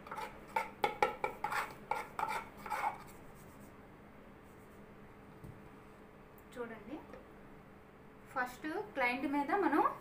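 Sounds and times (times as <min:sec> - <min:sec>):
metal spatula scraping metal bowl: 0:00.0 - 0:03.2.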